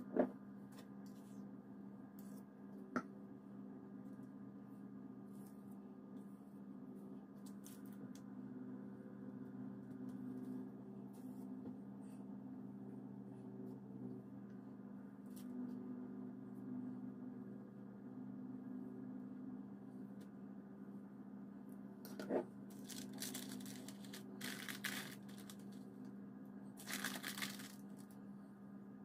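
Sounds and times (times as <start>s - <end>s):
low hum of held tones: 0.0s - 29.0s.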